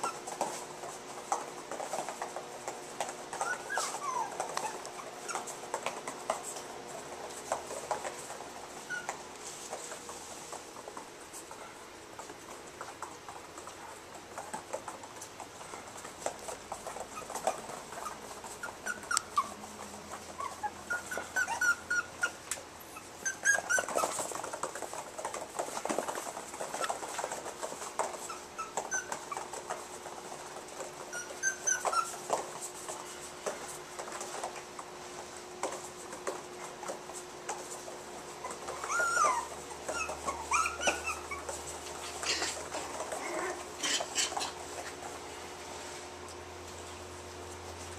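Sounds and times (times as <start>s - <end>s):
puppies yipping and squealing: 0.0s - 0.6s, 3.3s - 6.6s, 7.7s - 9.8s, 16.4s - 29.9s, 30.7s - 32.7s, 38.3s - 45.0s.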